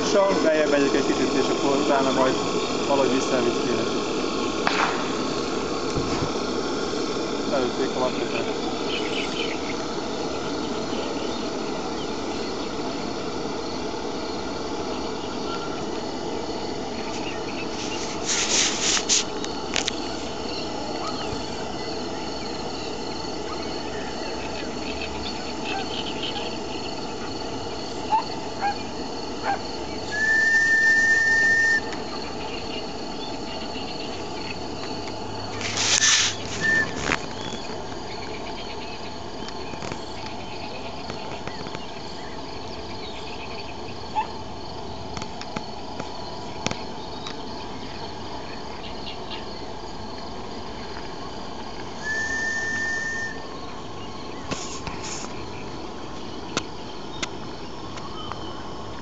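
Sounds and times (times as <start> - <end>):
insects chirping: 0.0 - 59.0
steam hiss with brief toot: 17.1 - 19.4, 30.1 - 31.9, 35.6 - 37.2, 52.0 - 53.5
steam whistle blowing: 30.1 - 32.0, 36.0 - 37.0, 52.0 - 53.5.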